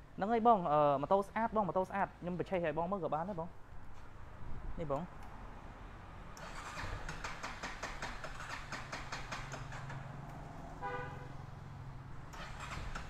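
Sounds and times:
motorcycle starter cranking: 6.4 - 10.4, 12.3 - 13.0.

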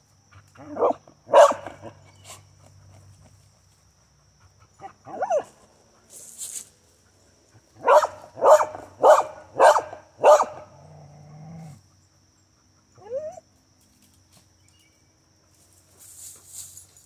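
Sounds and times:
dog barking: 0.6 - 2.0, 4.8 - 5.5, 7.8 - 10.7
dog growling: 10.7 - 11.8
dog whining: 13.0 - 13.4.

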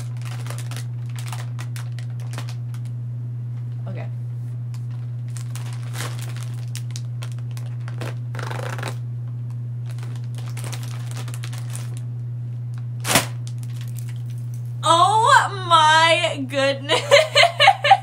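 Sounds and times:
foil bag cracking open: 0.0 - 3.0, 4.7 - 14.6
foil bag crinkling: 0.0 - 3.0, 4.7 - 14.7
steady low hum: 0.0 - 18.0.

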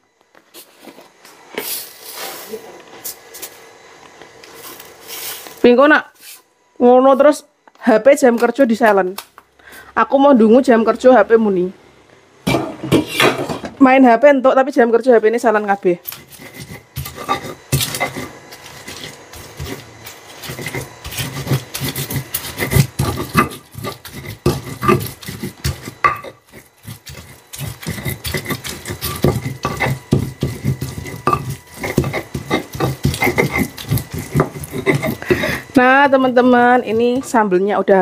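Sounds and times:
stone pestle grinding in mortar: 16.0 - 37.5.

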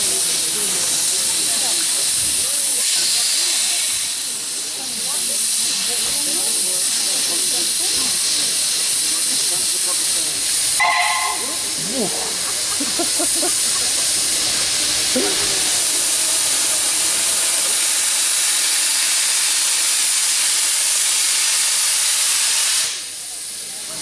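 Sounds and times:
steam hissing: 0.0 - 24.0
steam whistle toot: 10.8 - 11.6.

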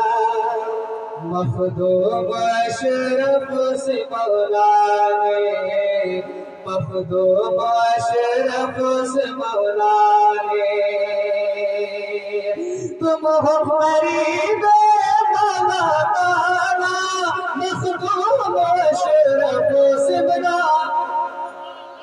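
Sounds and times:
man singing devotional song: 0.0 - 22.0.

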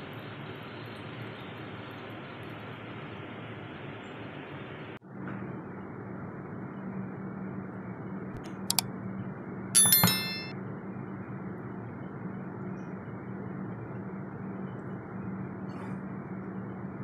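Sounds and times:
spatula clinking glass dish: 9.8 - 10.5.

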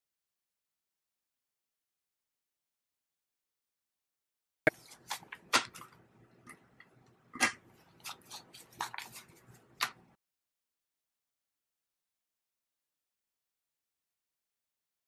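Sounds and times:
paper bills snapping and rustling: 4.7 - 6.0, 7.4 - 10.0.

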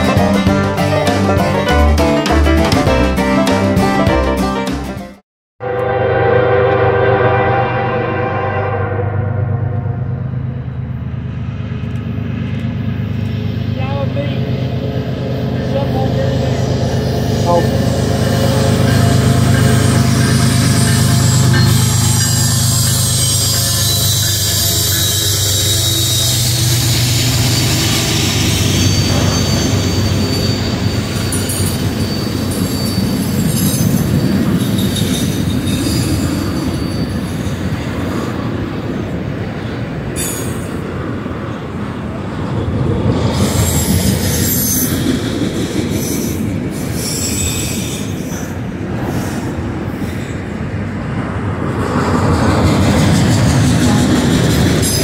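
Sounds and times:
train wheels rumbling on rail: 9.3 - 55.0
high-pitched wheel squeal: 15.6 - 37.8, 43.4 - 45.1, 45.7 - 48.6.

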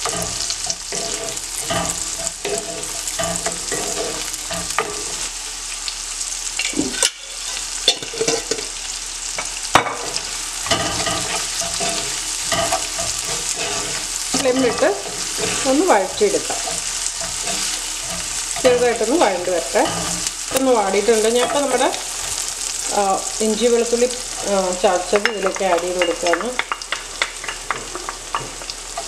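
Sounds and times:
wooden spatula scraping pan: 0.0 - 5.3, 10.1 - 23.0
food sizzling in oil: 0.0 - 29.0.

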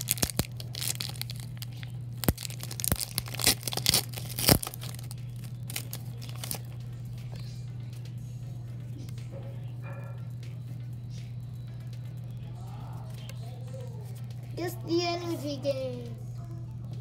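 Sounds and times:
foil wrapper crinkling and tearing: 0.0 - 6.8
low hum: 0.0 - 17.0.

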